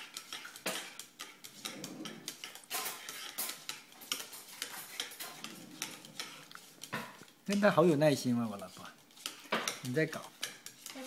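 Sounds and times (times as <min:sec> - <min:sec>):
utensil beating eggs in metal bowl: 0:00.0 - 0:11.0.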